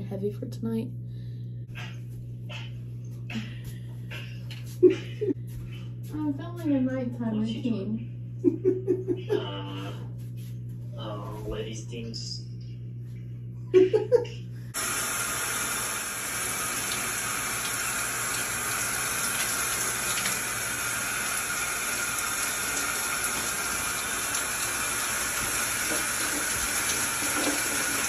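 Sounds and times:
shower water spraying: 14.8 - 28.0.

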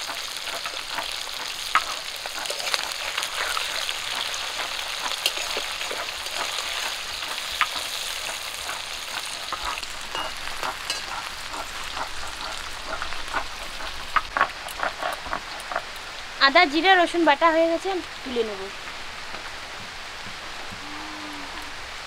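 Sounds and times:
spatula turning fish in pan: 0.0 - 16.0
fish sizzling in hot oil: 0.0 - 20.7.

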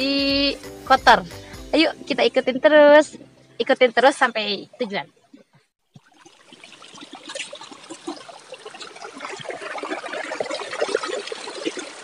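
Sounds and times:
stream trickling over rocks: 4.5 - 12.0.

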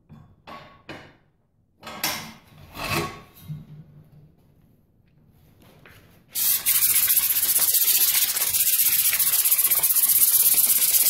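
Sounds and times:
sanding pad on metal wheel rim: 6.4 - 11.0.

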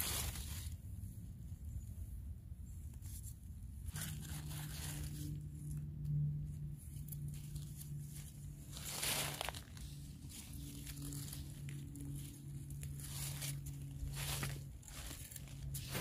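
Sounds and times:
leaf litter rustling: 0.0 - 0.8, 3.9 - 5.6, 7.0 - 16.0
steady low hum: 0.0 - 16.0.

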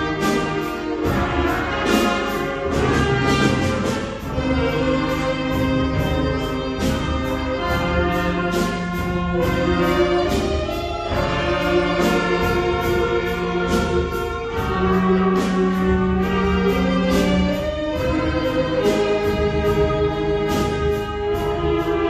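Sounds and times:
children's wind band playing: 0.0 - 22.0.

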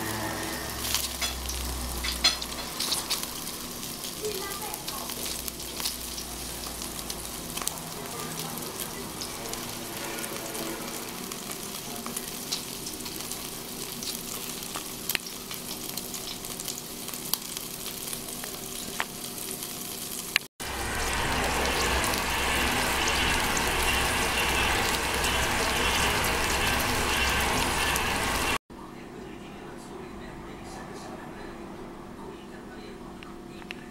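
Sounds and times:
meat sizzling on a grill: 0.0 - 28.6
low hum: 20.6 - 28.6.

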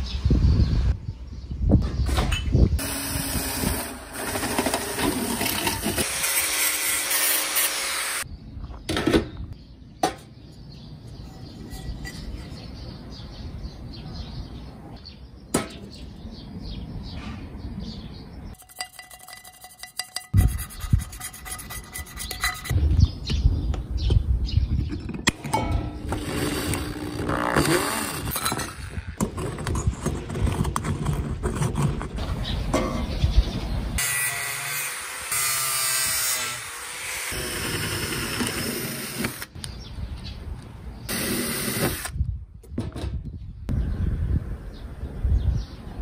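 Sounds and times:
ruler scraping on metal pan: 18.6 - 22.8.

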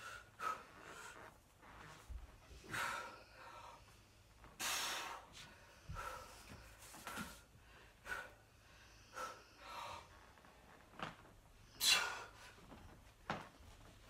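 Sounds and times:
man breathing hard: 0.0 - 1.3, 2.5 - 10.3.

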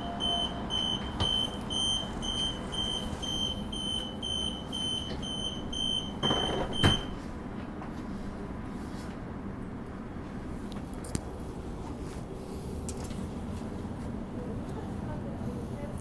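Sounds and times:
high door warning beeps: 0.0 - 7.2
train doors shutting knock: 6.2 - 7.2.

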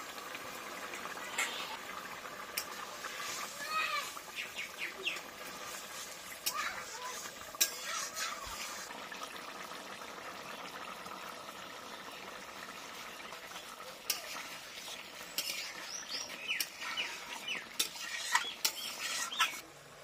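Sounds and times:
curry sizzling in a pan: 0.0 - 20.0
spatula scraping a metal pan: 5.6 - 8.9, 14.1 - 19.6.

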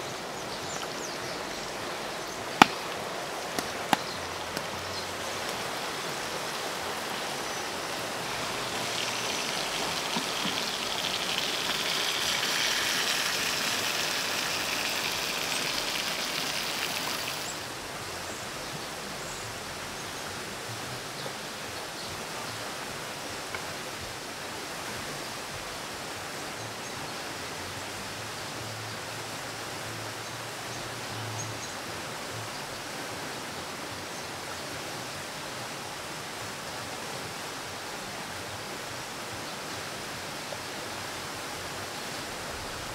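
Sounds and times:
food sizzling in pan: 8.4 - 17.6.

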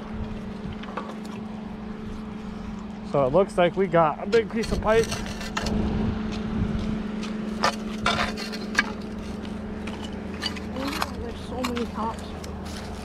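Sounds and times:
low mechanical hum: 0.0 - 13.0
metal pipe knocking and scraping: 4.2 - 5.8, 7.6 - 11.9.

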